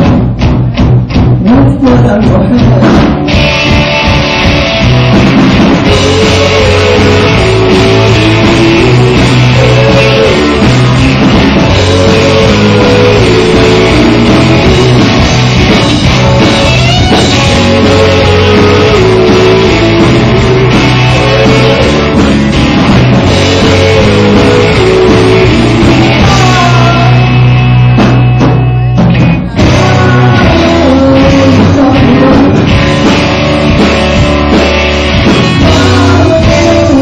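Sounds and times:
loud rock music: 0.0s - 37.0s
drum strokes: 2.7s - 30.8s.

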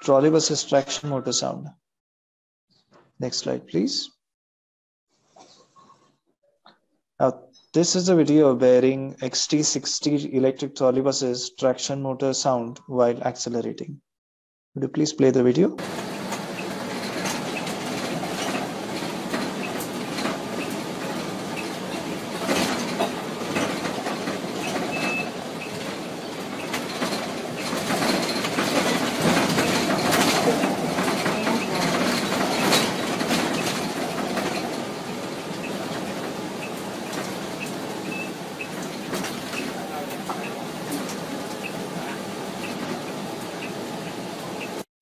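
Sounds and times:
rattles: 15.8s - 41.7s
electric bus motor whine: 15.8s - 44.8s
road noise: 15.8s - 44.8s.

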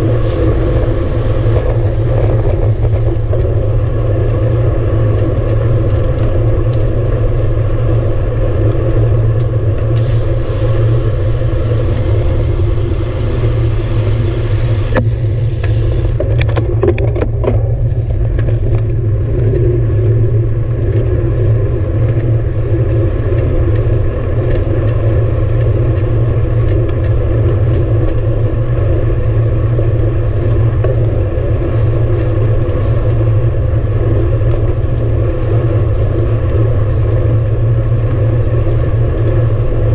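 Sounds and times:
band of hiss: 0.0s - 3.3s, 10.0s - 16.2s
bicycle road rumble: 0.0s - 39.9s
wind on microphone: 0.0s - 39.9s.

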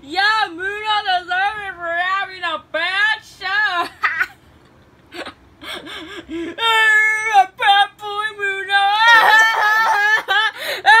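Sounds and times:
high voice whimpering and wailing: 8.8s - 11.0s.

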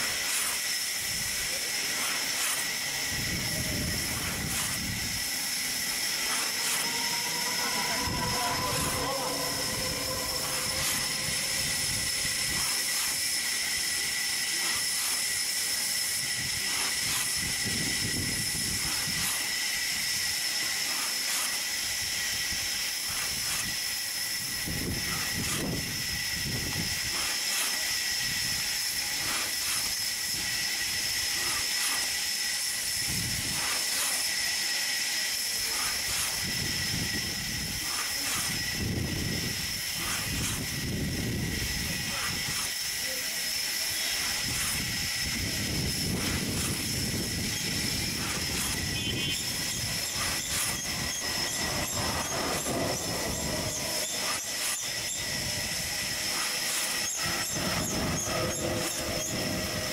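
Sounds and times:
hand saw rasping through log: 0.0s - 59.9s
steady hiss: 0.0s - 59.9s.

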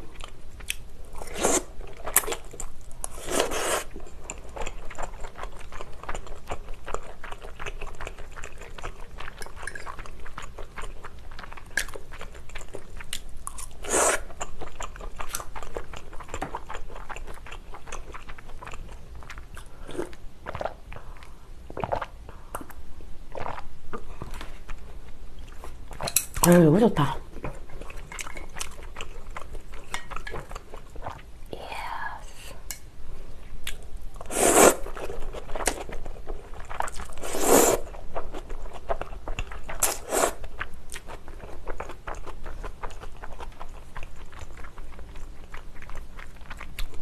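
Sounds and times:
wet chewing with clicks: 3.8s - 26.5s, 27.3s - 31.3s, 33.6s - 33.9s, 37.8s - 47.0s
noodles slurped from fork: 37.2s - 37.8s.

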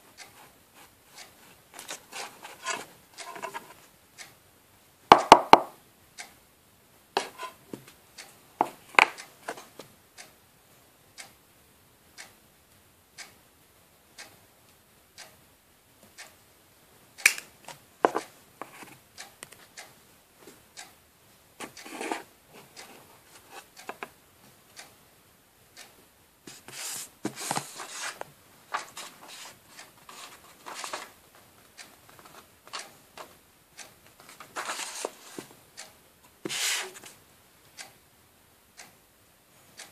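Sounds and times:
cd rubbing on tabletop: 36.4s - 37.0s.

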